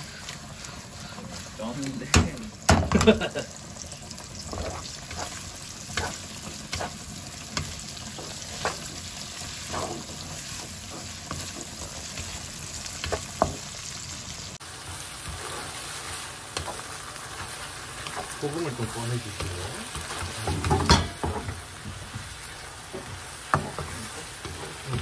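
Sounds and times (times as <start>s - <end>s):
garlic and ham sizzling in oil: 0.0s - 25.0s
pasta tossed in sizzling pan: 0.0s - 25.0s
wooden spatula scraping a pan: 4.4s - 13.9s, 14.8s - 25.0s.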